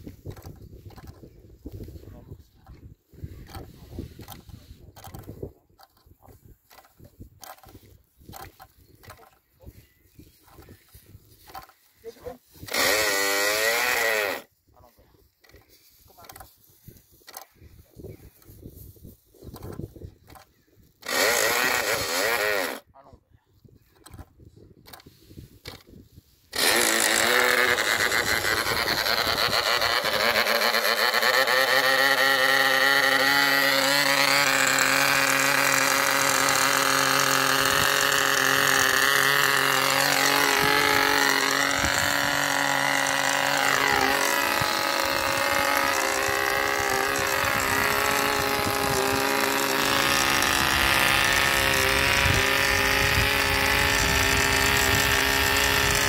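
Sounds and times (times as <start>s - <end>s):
propeller flicked by hand: 0.0s - 9.5s, 10.5s - 11.9s, 15.3s - 17.6s, 19.4s - 22.8s, 23.8s - 56.0s
model diesel engine running: 26.6s - 56.0s.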